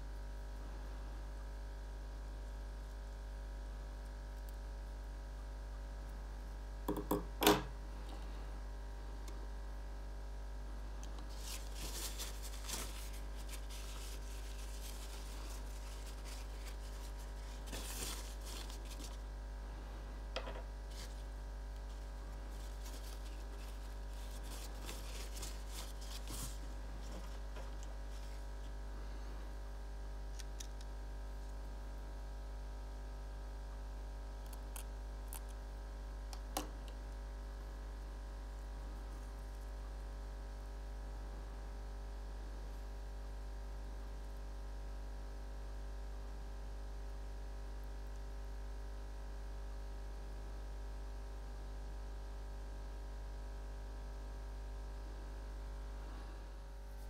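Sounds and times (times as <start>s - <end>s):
low electrical hum: 0.0s - 57.0s
hands rustling plant cuttings: 11.2s - 19.3s, 20.9s - 28.6s.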